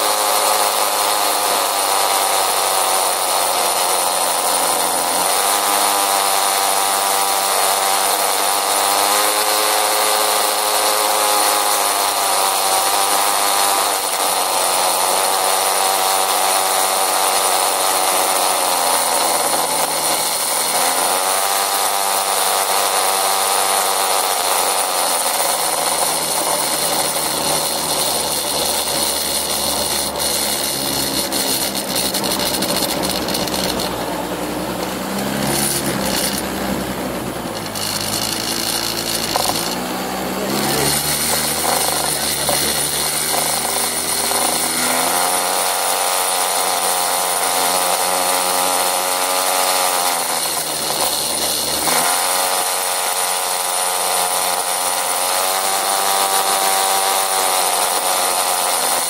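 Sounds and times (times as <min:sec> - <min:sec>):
motor scooter engine running: 0:00.0 - 0:59.0.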